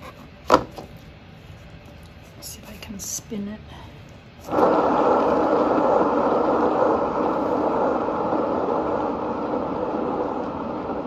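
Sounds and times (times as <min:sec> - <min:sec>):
spinner motor humming: 0:04.4 - 0:11.0.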